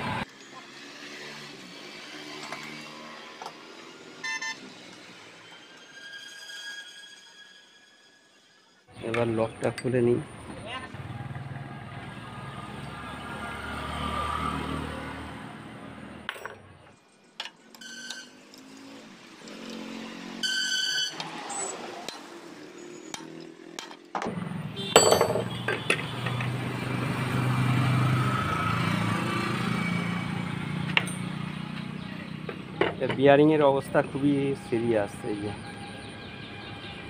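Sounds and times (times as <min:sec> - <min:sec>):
engine running in background: 0:21.2 - 0:37.0
hand tools clinking on metal: 0:25.0 - 0:26.0.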